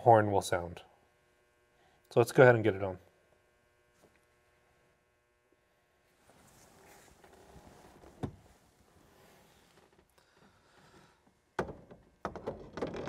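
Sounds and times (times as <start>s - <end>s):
faint rustling and handling noise: 5.6s - 11.3s.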